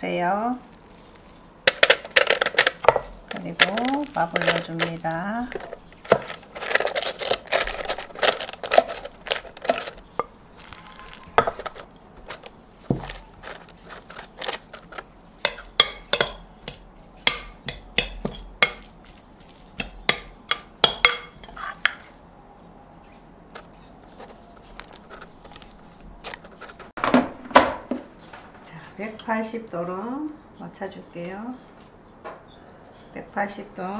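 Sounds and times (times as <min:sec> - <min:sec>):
utensils scraping a glass bowl: 0:19.8 - 0:22.2.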